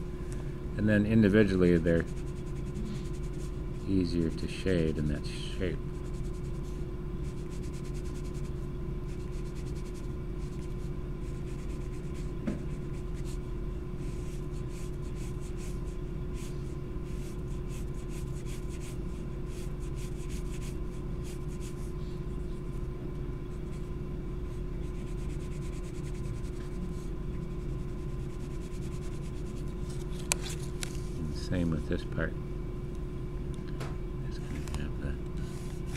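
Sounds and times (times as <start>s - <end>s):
pencil scratching on paper: 2.0s - 3.6s, 6.0s - 13.4s, 14.0s - 16.5s, 17.1s - 21.9s, 24.8s - 29.7s.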